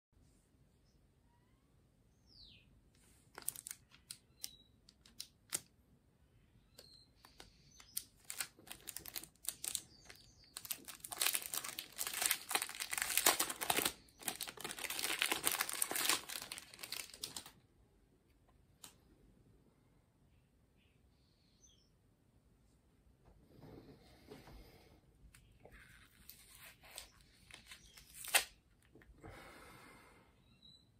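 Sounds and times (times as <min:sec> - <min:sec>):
plastic wrapper crinkling: 0:03.3 - 0:05.7, 0:07.3 - 0:17.6, 0:26.2 - 0:28.8.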